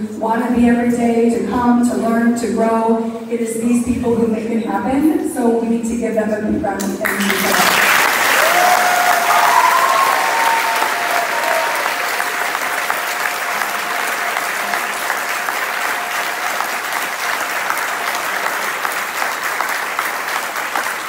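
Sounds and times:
audience applauding: 7.0s - 21.0s.

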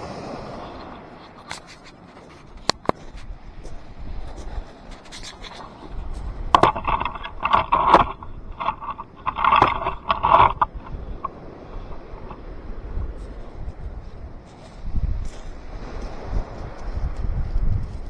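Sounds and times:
gritty pebble crunching: 1.2s - 12.4s, 13.2s - 18.0s
pebbles scraping and clacking: 1.2s - 12.4s.

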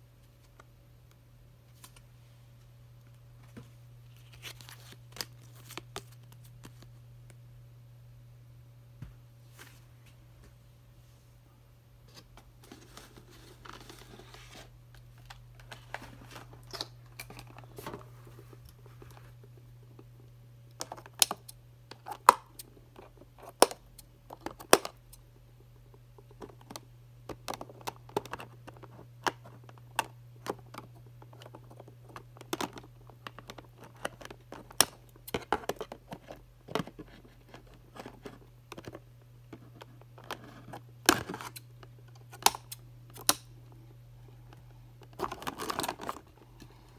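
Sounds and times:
steady low hum: 0.0s - 46.9s
cardboard packaging rustling: 12.6s - 19.4s, 45.0s - 46.6s.

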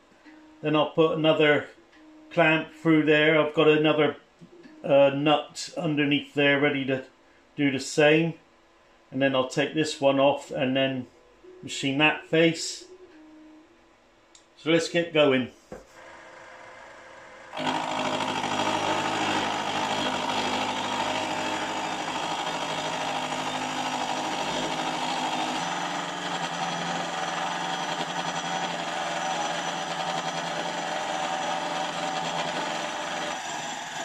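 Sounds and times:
milling machine cutting metal: 16.0s - 34.0s.

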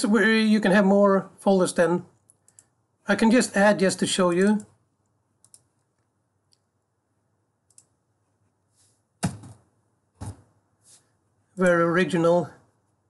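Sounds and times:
computer mouse clicks: 2.2s - 2.8s, 4.6s - 6.7s, 7.7s - 8.0s.

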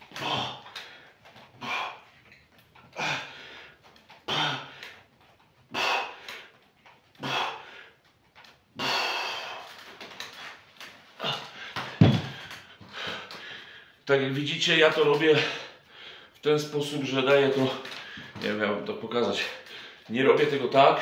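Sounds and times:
man breathing out forcefully: 2.9s - 5.0s, 5.7s - 6.6s, 7.2s - 8.0s, 8.8s - 9.9s.

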